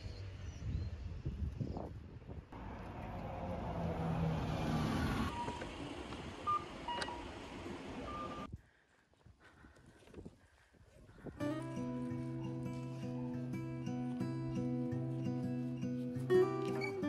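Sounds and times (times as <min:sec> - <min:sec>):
street traffic: 0:00.0 - 0:08.6, 0:11.4 - 0:17.0
vehicle engine passing: 0:02.6 - 0:08.5
short electronic beeps: 0:05.3 - 0:05.7.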